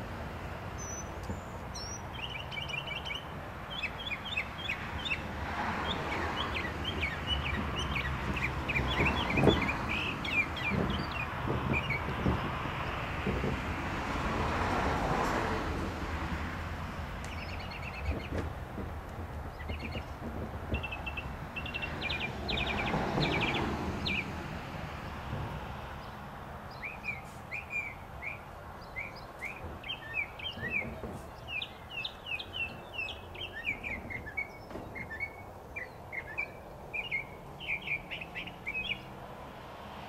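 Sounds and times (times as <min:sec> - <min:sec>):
mockingbird singing: 0:00.8 - 0:12.4, 0:17.3 - 0:18.4, 0:19.5 - 0:24.3, 0:26.7 - 0:39.1.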